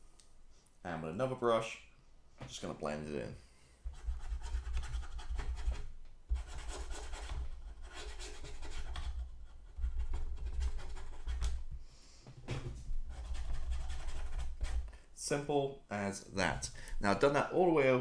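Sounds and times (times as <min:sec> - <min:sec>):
paintbrush scrubbing on plastic: 0:03.9 - 0:11.7, 0:13.1 - 0:14.9.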